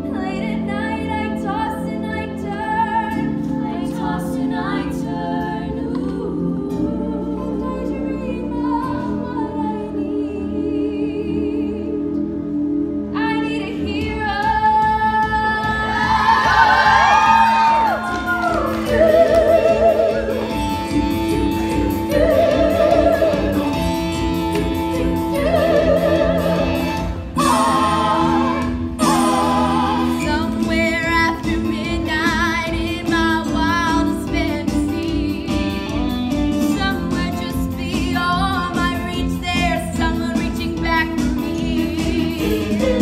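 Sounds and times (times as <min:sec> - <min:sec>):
instrumental accompaniment: 0:00.0 - 0:43.0
woman singing with vibrato: 0:13.1 - 0:43.0.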